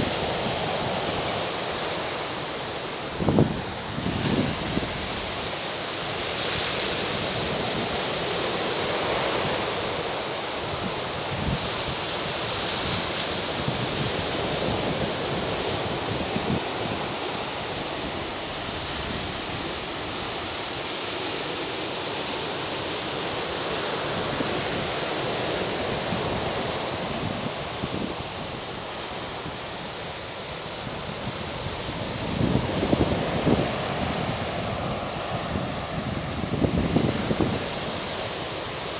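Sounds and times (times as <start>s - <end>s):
wind buffeting microphone: 0.0s - 21.0s, 22.4s - 38.9s
ocean surf breaking: 0.0s - 38.9s.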